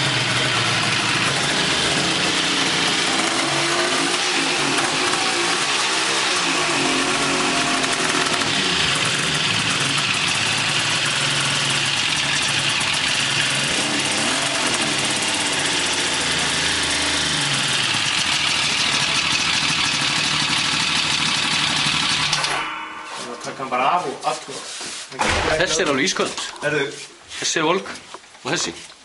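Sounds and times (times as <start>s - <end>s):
snowmobile engine idling: 0.0s - 22.4s.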